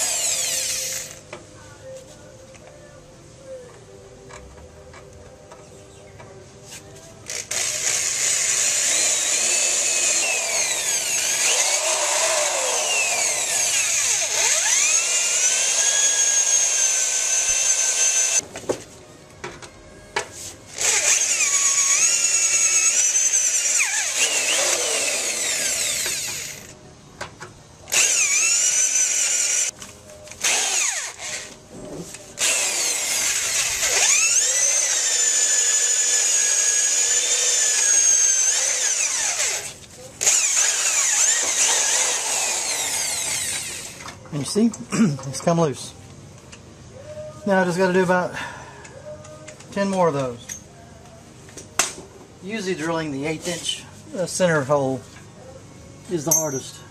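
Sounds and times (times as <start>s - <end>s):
power drill whining through steel: 0.0s - 1.2s, 7.3s - 18.4s, 20.7s - 26.8s, 27.9s - 29.7s, 30.3s - 31.6s, 32.4s - 44.1s.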